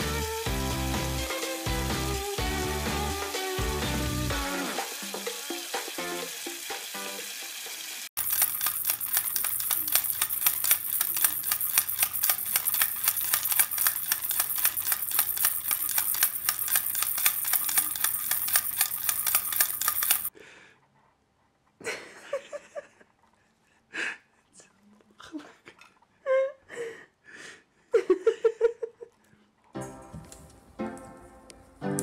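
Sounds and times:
water spraying from hose: 0.9s - 9.3s
plastic rattle toy shaking: 4.8s - 20.3s.

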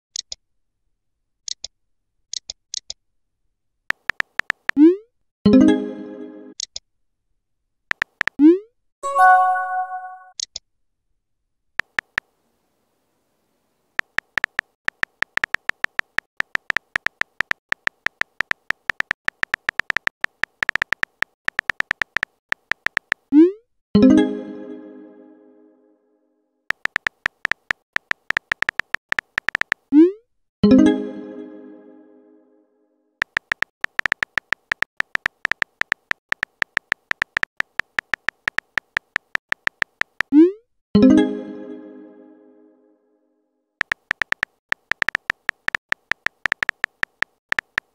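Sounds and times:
phone keyboard tap clicks: 3.9s - 4.8s, 7.9s - 8.4s, 14.0s - 23.3s, 26.7s - 29.9s, 33.2s - 40.3s, 43.8s - 47.9s.

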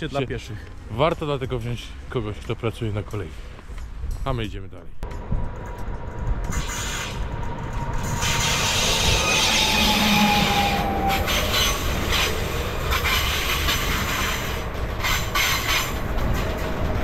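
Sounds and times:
train wheels on rails: 5.1s - 17.0s
falling whine: 7.1s - 12.8s.

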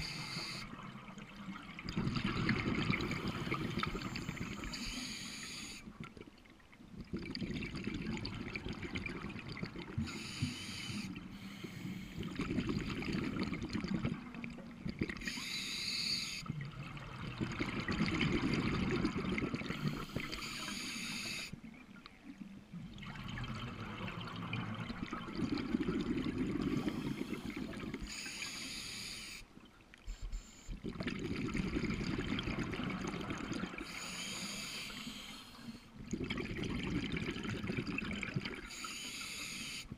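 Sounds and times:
bubbles gurgling underwater: 0.7s - 4.7s, 6.9s - 10.2s, 12.2s - 15.3s, 16.5s - 20.4s, 22.8s - 28.1s, 30.8s - 33.9s, 36.0s - 38.7s
diver breathing through regulator: 10.0s - 12.4s, 15.2s - 16.5s, 19.7s - 21.6s, 26.6s - 29.5s, 33.8s - 36.0s, 38.7s - 39.9s.

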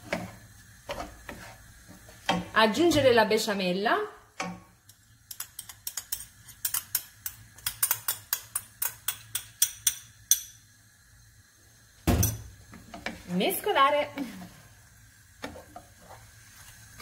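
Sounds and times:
spoon clicking against glass bowl: 5.3s - 10.6s.

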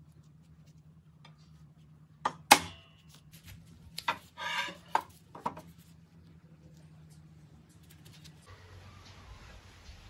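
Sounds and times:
short metal scrape: 4.2s - 4.9s.

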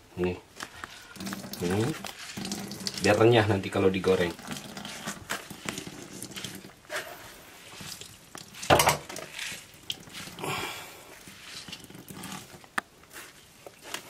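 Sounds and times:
wet squelching of grated potato: 0.6s - 14.0s
water dripping into bowl: 1.2s - 3.2s.

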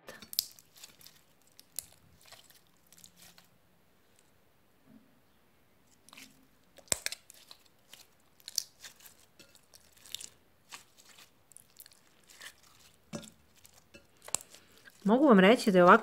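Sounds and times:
slime sticky crackles and pops: 0.1s - 3.5s, 6.1s - 15.1s.

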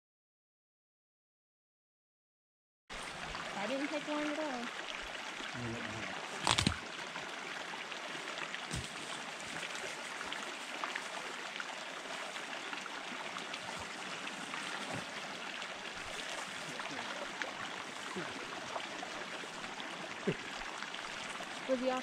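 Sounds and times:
creek water rushing: 2.9s - 22.0s.

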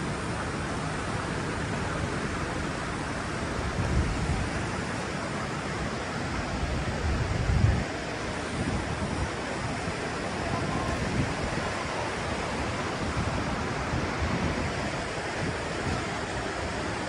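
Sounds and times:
mountain stream rushing: 0.0s - 17.0s
wind buffeting microphone: 3.5s - 17.0s.

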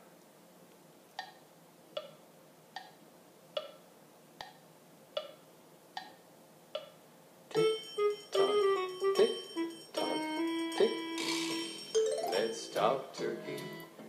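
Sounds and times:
wood block ticking: 1.2s - 1.4s, 2.0s - 2.2s, 3.6s - 3.8s, 5.2s - 5.4s, 6.8s - 7.6s
music: 7.6s - 14.0s.

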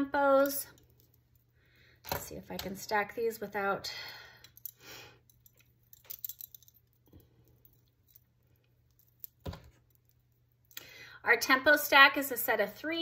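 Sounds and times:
metal bangles clinking: 4.4s - 10.8s.

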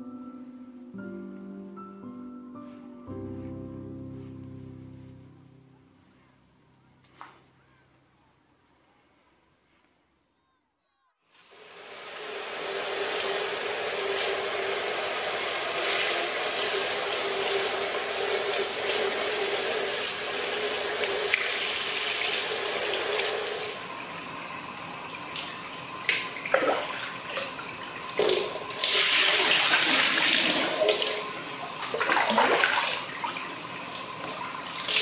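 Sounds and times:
water pouring into a bath: 11.4s - 35.0s.

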